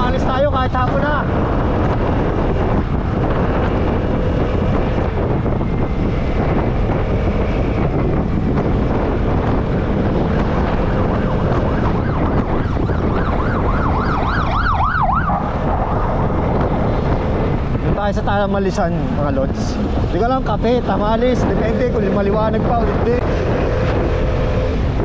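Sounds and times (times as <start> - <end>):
wind on microphone: 0.0 - 25.0
siren wailing: 10.6 - 16.8.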